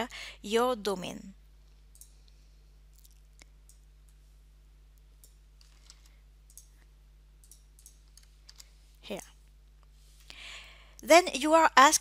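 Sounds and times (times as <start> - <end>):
low electrical hum: 0.0 - 12.0
keyboard and mouse clicks: 1.9 - 2.2, 5.2 - 6.8, 7.4 - 8.7.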